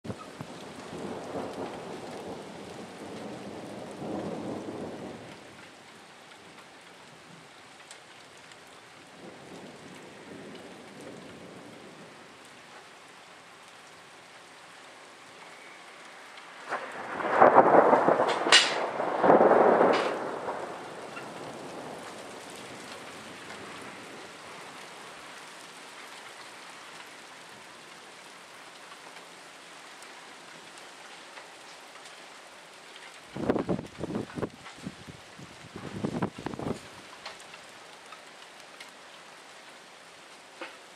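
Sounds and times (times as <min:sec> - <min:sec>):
steady rain: 0:00.0 - 0:40.9
rolling thunder: 0:00.2 - 0:05.6, 0:16.3 - 0:24.8, 0:33.3 - 0:36.8
loud thunderclap: 0:16.6 - 0:23.8.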